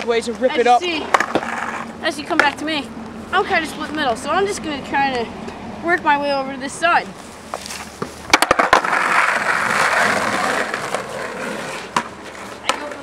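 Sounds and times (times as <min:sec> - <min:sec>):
skateboard wheels rolling on concrete: 0:00.0 - 0:05.3, 0:05.9 - 0:13.0
skateboard clacks: 0:01.1 - 0:02.6, 0:08.0 - 0:13.0.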